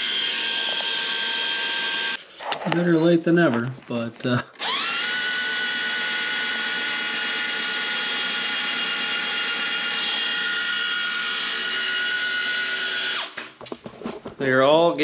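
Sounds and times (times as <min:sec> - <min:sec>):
electric drill whining: 0:00.0 - 0:02.2, 0:04.6 - 0:13.4.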